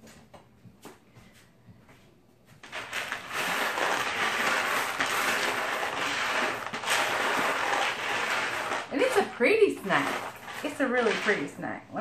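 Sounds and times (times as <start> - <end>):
nuts and candies rattling in plastic: 2.6 - 11.6.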